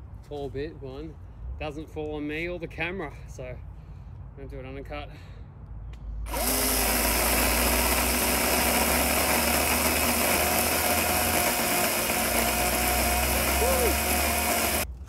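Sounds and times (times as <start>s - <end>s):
battery chainsaw cutting wood: 6.3s - 14.9s.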